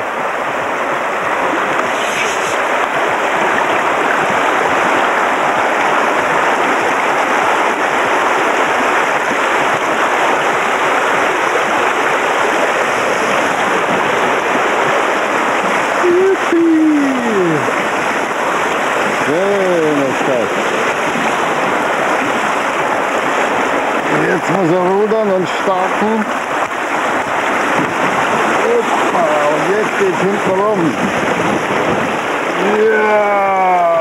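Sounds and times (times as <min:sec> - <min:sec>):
river rapids rushing: 0:00.0 - 0:34.0
person calling: 0:16.0 - 0:17.7.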